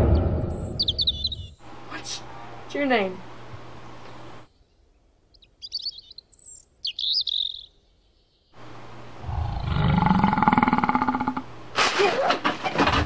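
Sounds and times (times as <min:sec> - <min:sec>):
high bird-like chirping: 0:00.0 - 0:02.3, 0:05.3 - 0:07.8
loud rising roar: 0:09.2 - 0:11.5.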